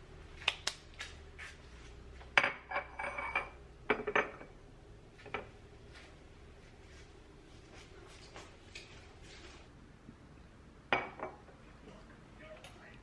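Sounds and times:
objects clattering with short ring: 2.4s - 4.5s.

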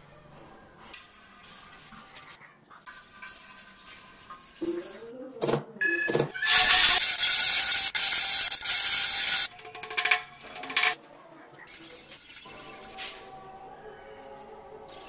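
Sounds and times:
marker squeaking on tile: 6.1s - 9.4s
electric drill boring through tile: 6.4s - 9.5s.

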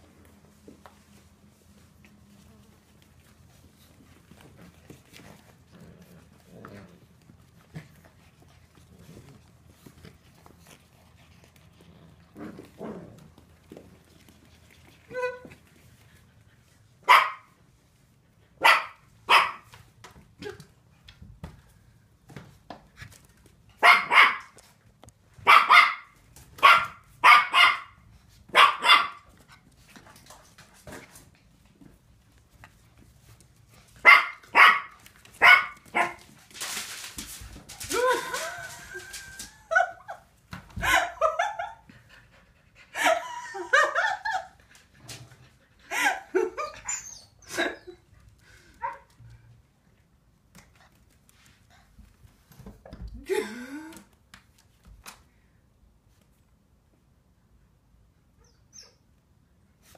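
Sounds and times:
puppy barking: 17.1s - 17.6s, 18.6s - 19.7s, 23.8s - 24.6s, 25.4s - 29.2s, 34.0s - 36.2s
puppies yapping and whining: 46.6s - 47.9s.

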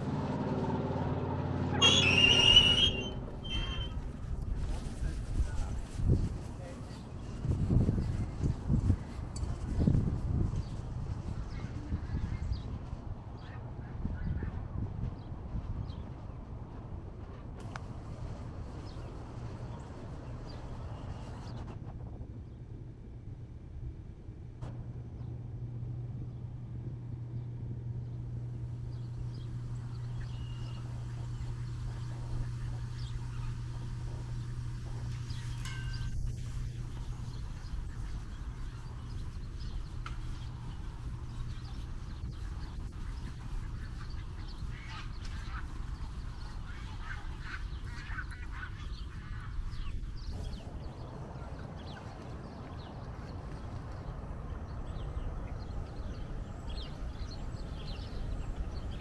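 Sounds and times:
low rumble: 0.0s - 59.0s
steady low hum: 0.0s - 59.0s
birds chirping: 1.7s - 5.6s, 27.3s - 59.0s
faint bird chirps: 1.8s - 4.0s
ducks quacking: 42.3s - 50.6s.

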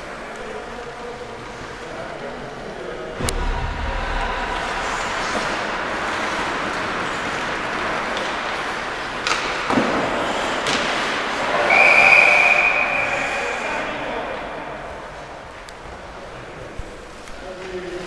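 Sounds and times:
steady rink noise: 0.0s - 18.0s
hockey sticks and puck knocking: 6.6s - 11.5s
referee's whistle long blast: 11.7s - 13.6s.

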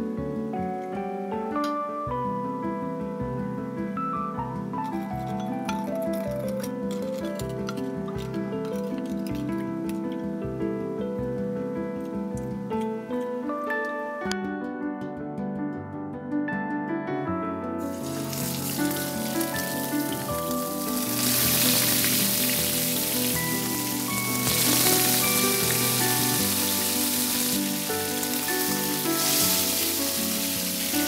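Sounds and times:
soft background music: 0.0s - 31.0s
steaks sizzling in oil: 17.8s - 31.0s.

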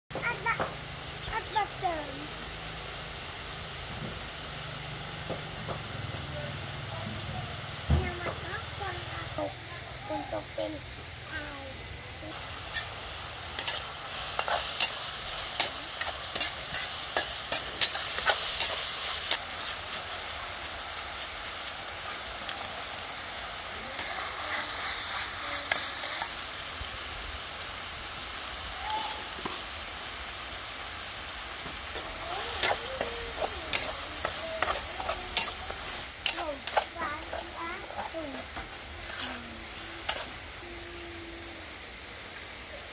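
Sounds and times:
meat sizzling in a wok: 0.1s - 42.9s
metal spatula scraping a pan: 12.6s - 19.4s, 32.0s - 40.4s.

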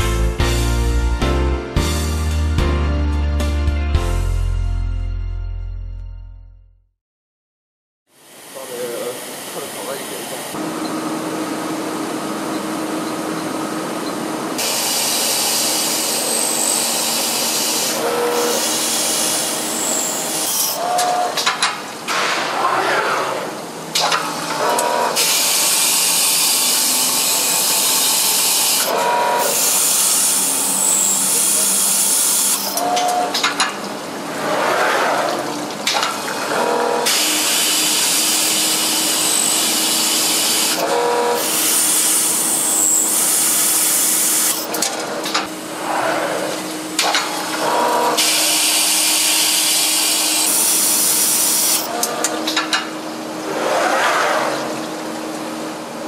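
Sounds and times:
drilling machine hiss: 14.6s - 20.8s, 25.2s - 33.0s, 37.1s - 44.7s, 48.2s - 51.9s.

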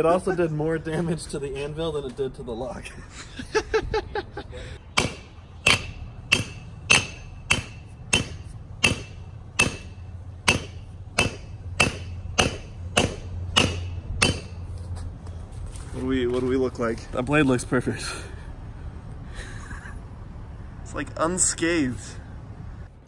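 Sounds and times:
axe striking anvil: 5.0s - 14.6s.

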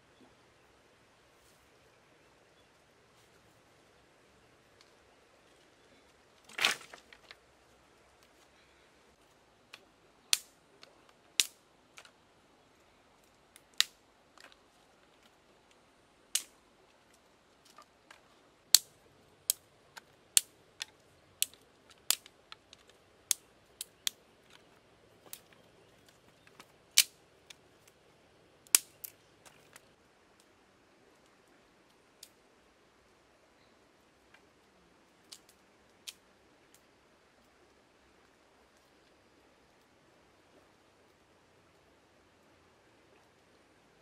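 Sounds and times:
sticks clacking against stones: 6.4s - 7.4s, 10.3s - 12.2s, 16.4s - 16.6s, 19.5s - 28.0s, 28.7s - 30.0s
dry sticks snapping: 9.7s - 12.2s, 13.2s - 14.6s, 16.4s - 16.6s, 17.6s - 28.0s, 28.6s - 29.9s.

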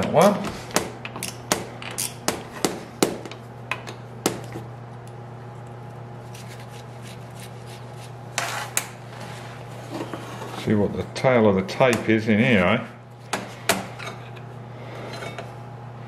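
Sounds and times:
steady low hum: 0.0s - 16.0s
metal scrape: 8.4s - 10.7s.

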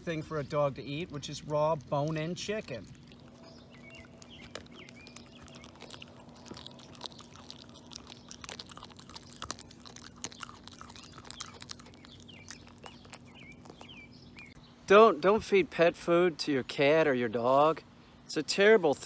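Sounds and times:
dog chewing and licking: 0.0s - 14.6s.

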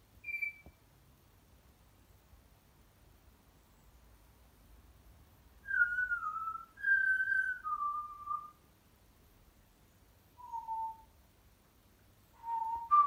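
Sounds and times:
parrot whistling: 0.2s - 0.7s, 12.4s - 13.0s.

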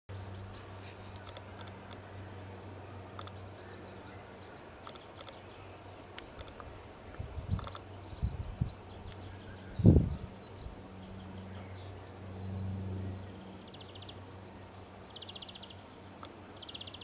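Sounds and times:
steady low hum: 0.1s - 17.0s.

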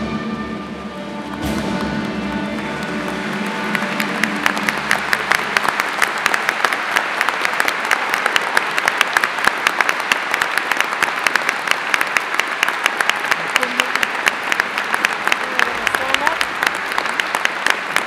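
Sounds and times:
audience applauding: 1.1s - 18.0s.

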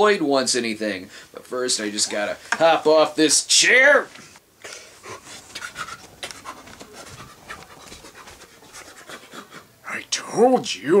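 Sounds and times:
soft footsteps on carpet: 5.2s - 8.9s.

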